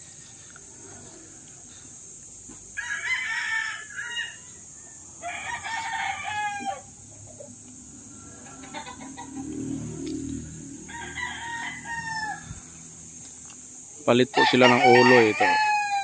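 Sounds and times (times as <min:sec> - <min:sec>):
faint high hiss: 0:00.0 - 0:10.9
rooster crowing: 0:02.8 - 0:07.0, 0:08.0 - 0:13.0, 0:14.3 - 0:16.0.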